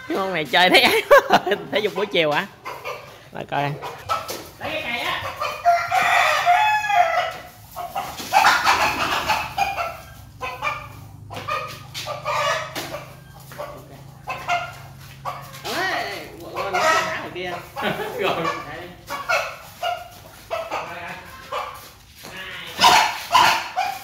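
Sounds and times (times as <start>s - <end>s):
chickens clucking: 0.0s - 24.0s
rooster crowing: 5.6s - 7.5s.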